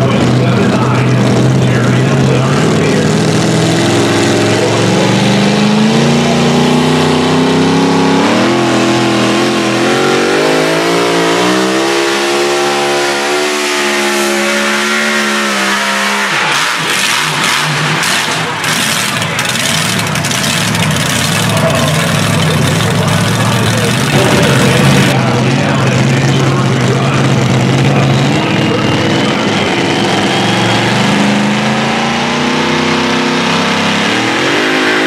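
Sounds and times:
truck engine at full throttle: 0.0 - 35.0
rough noisy rush with crackles: 16.8 - 30.8.

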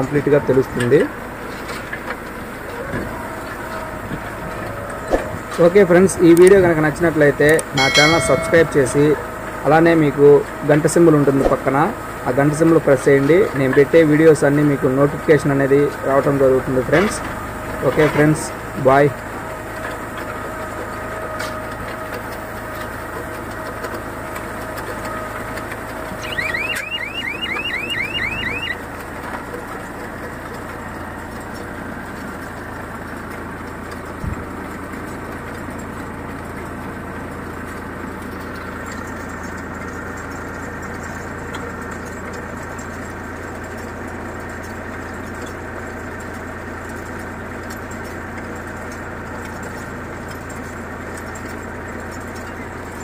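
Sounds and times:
baler humming: 7.8 - 9.1, 26.1 - 28.8
short rising chirps: 26.2 - 28.8.

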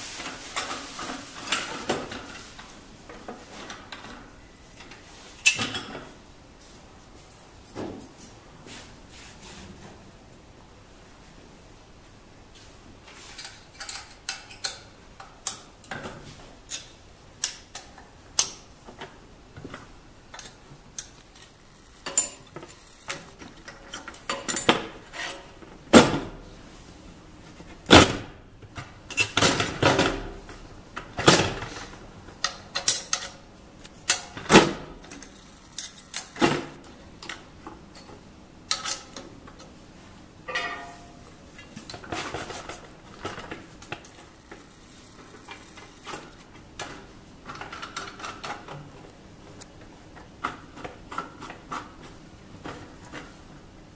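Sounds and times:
metallic clicks and clanks: 13.4 - 16.0, 20.3 - 25.4, 40.5 - 44.2.

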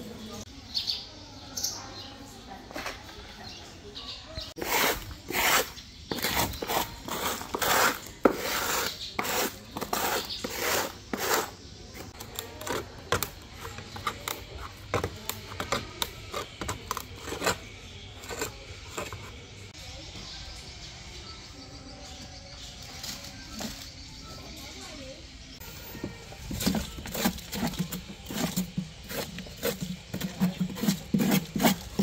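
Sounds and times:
rasping scraping strokes: 4.6 - 11.6, 12.6 - 19.4, 26.4 - 32.0.

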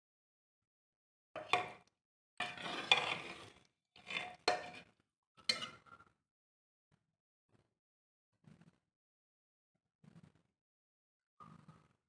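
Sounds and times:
metal ladle scraping a pot: 2.4 - 4.9, 5.5 - 5.8.

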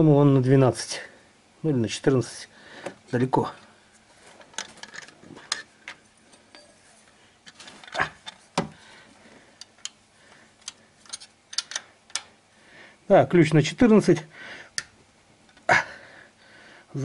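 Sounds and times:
wrench clicks and clinks: 10.6 - 12.2.

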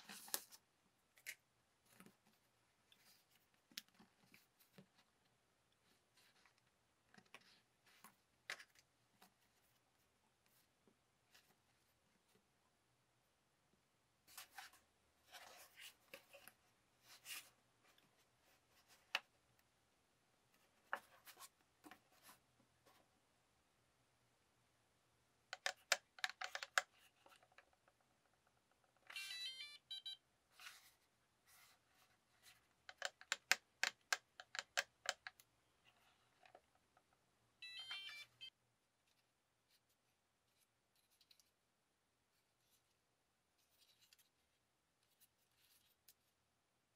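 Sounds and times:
plastic clicks and rattles: 25.5 - 28.0.

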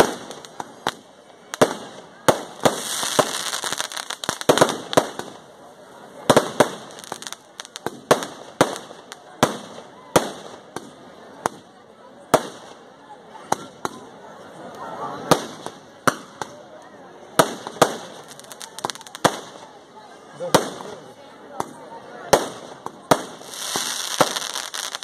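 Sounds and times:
firecrackers banging: 0.0 - 5.5, 6.2 - 11.7, 15.2 - 16.6, 17.2 - 19.8, 21.6 - 25.0
hissing crackle: 22.4 - 25.0.

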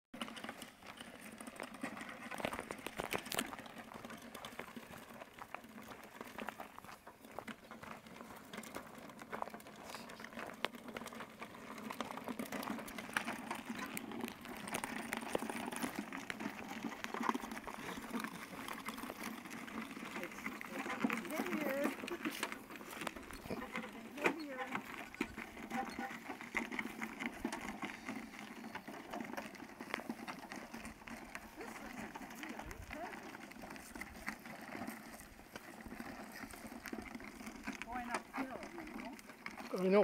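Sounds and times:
lawnmower wheels crunching gravel: 0.1 - 40.0
footsteps on gravel: 0.2 - 40.0.

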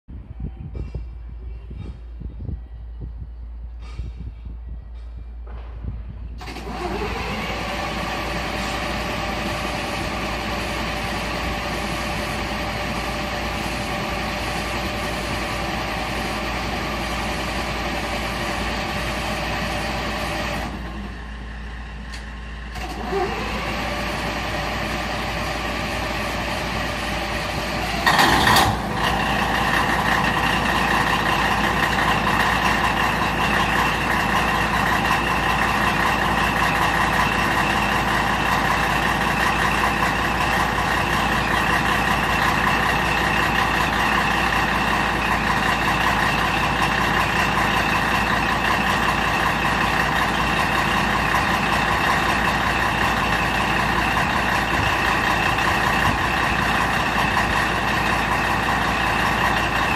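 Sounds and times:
diesel engine starting and idling: 1.4 - 59.9
loud engine burst: 5.4 - 21.0, 22.7 - 45.2.

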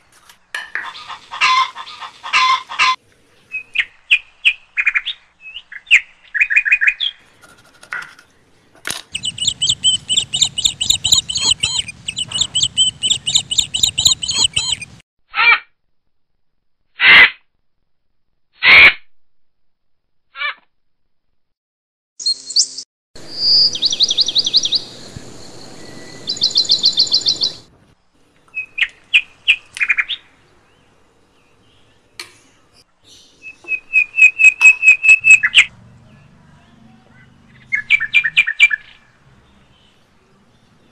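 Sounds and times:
bird chirping: 0.9 - 7.4, 8.3 - 15.0, 22.2 - 27.7, 28.4 - 40.9.

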